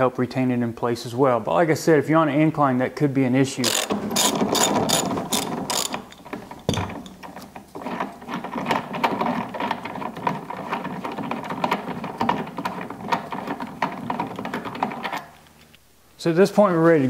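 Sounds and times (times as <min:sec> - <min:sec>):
hand ratchet clicking: 0:03.6 - 0:07.4.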